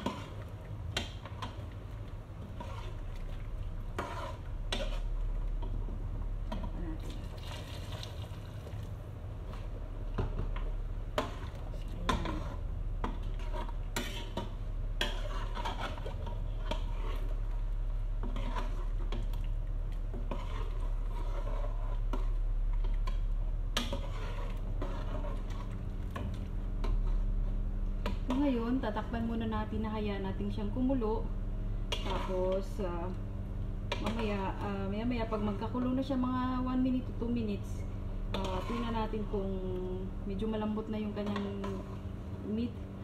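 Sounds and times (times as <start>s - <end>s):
metal spoon stirring in pot: 0.0s - 8.8s, 10.2s - 29.0s, 31.9s - 32.9s, 33.9s - 39.7s, 40.4s - 42.1s
steady low hum: 0.0s - 43.0s
water pouring from kettle: 7.3s - 8.7s.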